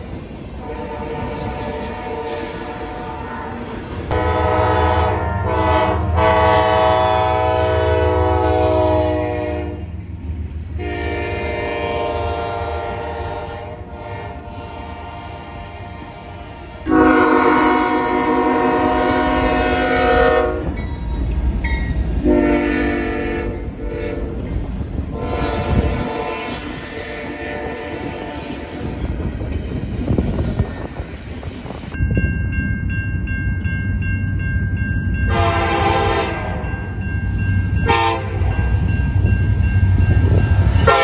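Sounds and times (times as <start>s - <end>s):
passing trains rumbling: 0.0s - 41.0s
locomotive air horn blasts: 0.6s - 9.9s, 10.8s - 20.8s, 22.2s - 24.4s, 25.1s - 28.9s, 35.3s - 36.6s, 37.8s - 38.5s, 40.8s - 41.0s.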